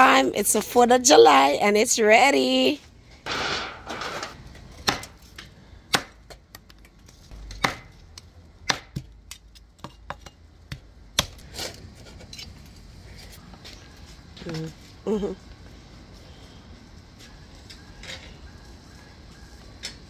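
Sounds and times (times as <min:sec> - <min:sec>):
cleaver chopping on stone board: 0:04.8 - 0:05.1, 0:05.9 - 0:06.2, 0:07.4 - 0:07.9, 0:08.6 - 0:11.4.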